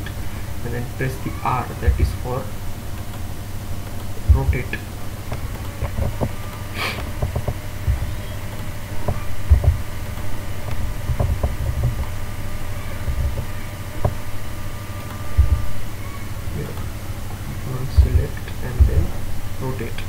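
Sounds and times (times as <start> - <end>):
low rumbling microphone noise: 0.0 - 20.0
short hiss: 6.7 - 7.1.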